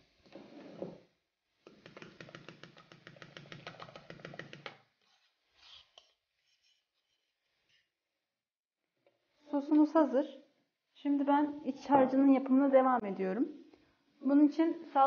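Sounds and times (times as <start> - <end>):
fork whisking in a bowl: 1.7 - 7.2.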